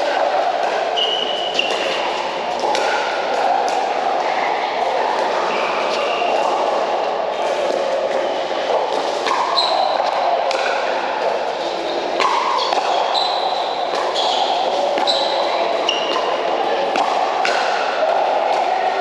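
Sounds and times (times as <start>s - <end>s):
indoor hall background noise: 0.0s - 19.0s.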